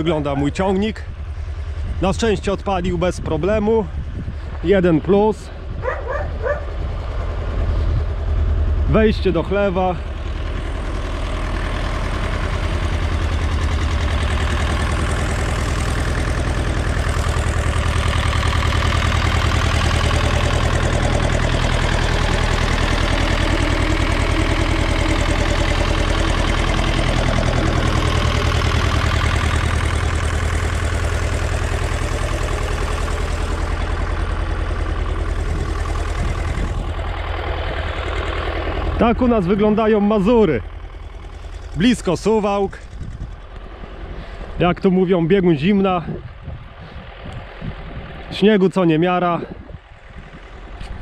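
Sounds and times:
tractor diesel engine idling: 0.0 - 51.0.

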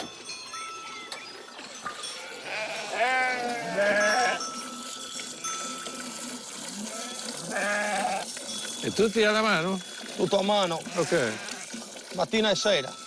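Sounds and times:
sheep bleating: 2.2 - 4.4, 6.7 - 8.3, 10.8 - 11.7.

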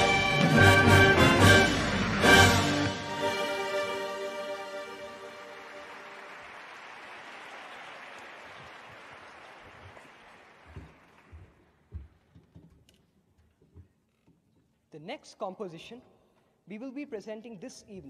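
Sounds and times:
audience applause: 0.3 - 11.7.

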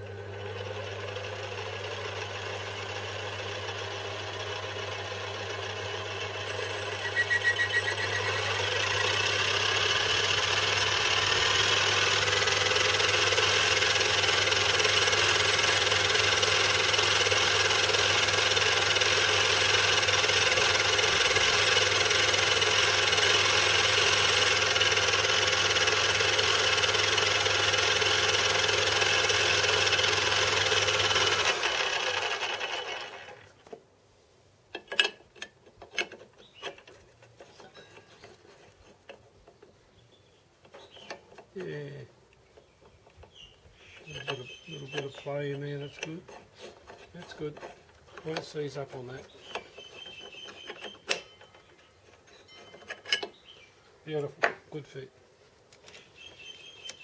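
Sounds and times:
lathe motor hum: 0.0 - 33.5
lathe tool cutting metal: 0.6 - 33.3.

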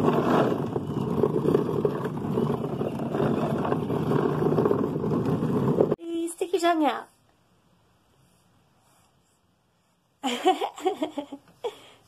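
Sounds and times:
plastic wheels rolling on asphalt: 0.0 - 6.0.

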